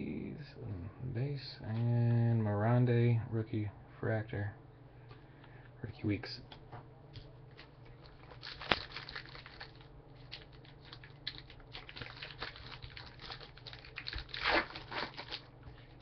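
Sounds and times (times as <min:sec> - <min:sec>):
foil wrapper crinkling: 0:07.5 - 0:16.0.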